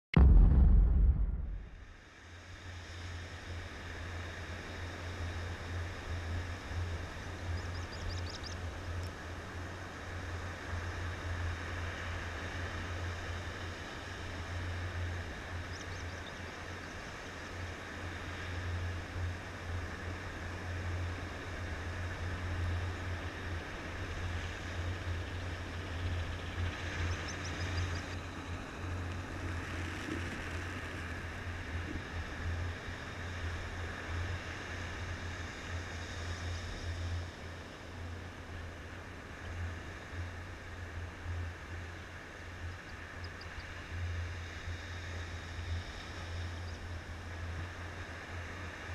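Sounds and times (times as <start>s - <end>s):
wind rumble on microphone: 0.1s - 2.0s, 3.9s - 43.2s
surf hiss: 27.8s - 48.9s.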